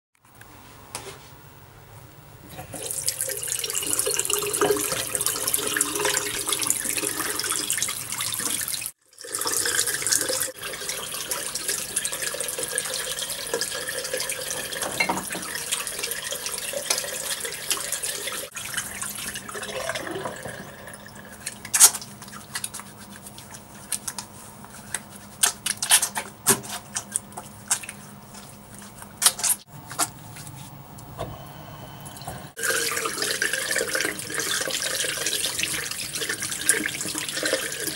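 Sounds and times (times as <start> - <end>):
tap water running into basin: 2.6 - 24.2, 32.0 - 37.9
hands washing with wet splashes: 2.8 - 30.7.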